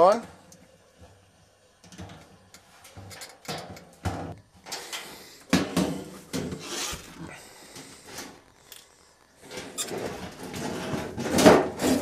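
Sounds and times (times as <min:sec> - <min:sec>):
plastic panel scraping and knocking: 0:09.5 - 0:12.0.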